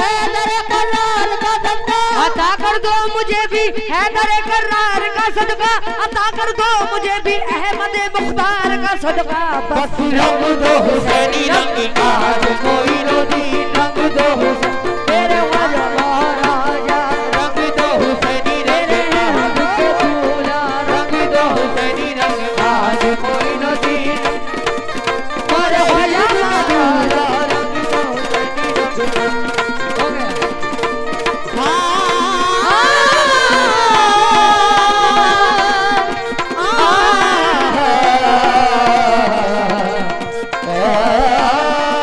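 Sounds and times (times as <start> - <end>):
harmonium chords: 0.0 - 42.0
hand drum playing: 4.5 - 42.0
woman singing: 31.6 - 42.0.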